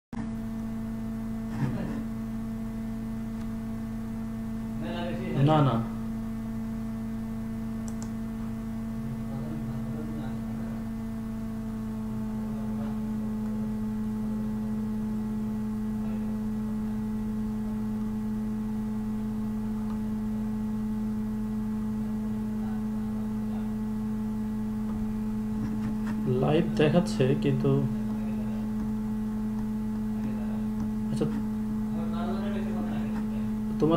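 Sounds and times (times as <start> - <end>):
electrical hum: 0.1 - 33.9
faint clicks: 7.8 - 8.2.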